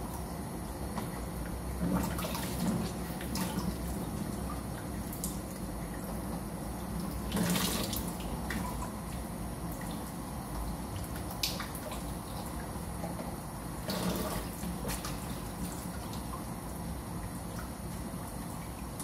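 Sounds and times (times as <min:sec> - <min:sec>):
small splashes and clicks: 0:04.5 - 0:06.1, 0:11.0 - 0:16.5.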